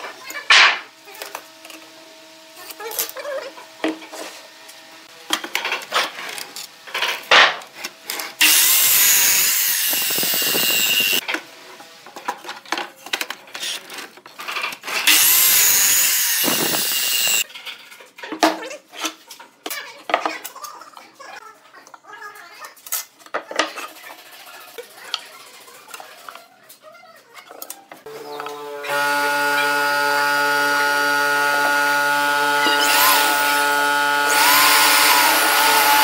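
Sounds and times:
miter saw cutting wood: 8.0 - 11.2, 15.0 - 17.4, 28.1 - 36.0.

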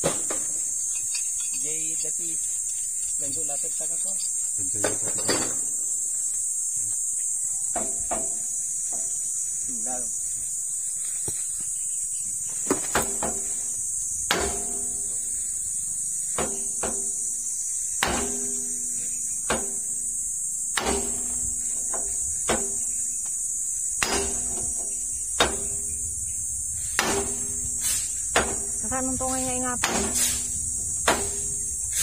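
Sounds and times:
hammer striking steel bar: 14.3 - 15.1, 18.0 - 19.8, 20.8 - 22.8, 24.0 - 25.8, 27.0 - 27.5, 29.8 - 30.4.

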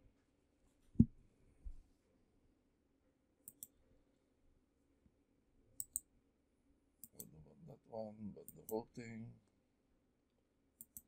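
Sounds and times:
computer mouse double-clicking: 3.5 - 3.7, 5.8 - 6.0, 10.8 - 11.0.

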